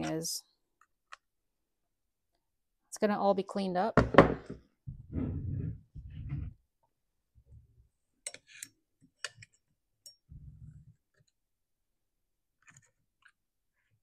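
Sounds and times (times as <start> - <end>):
soft low bumps: 4.9 - 6.6.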